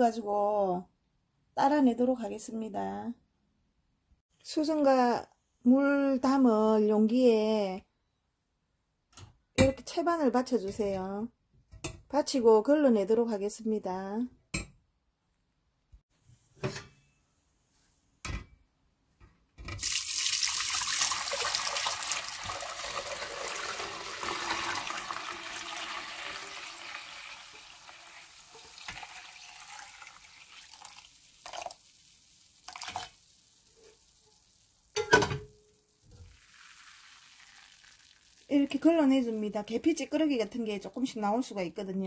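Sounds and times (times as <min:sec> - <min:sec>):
tea pouring through a sieve: 0:19.8 - 0:34.8, 0:36.2 - 0:38.8.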